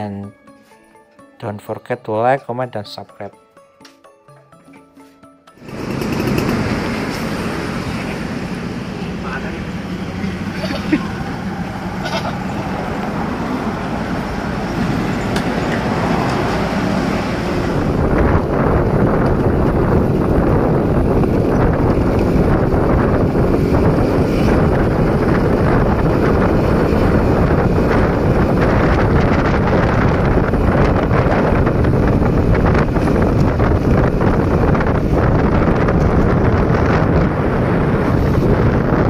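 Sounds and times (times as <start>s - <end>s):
road noise: 5.0s - 39.0s
motorbike engine: 5.6s - 39.0s
wind buffeting microphone: 10.4s - 39.0s.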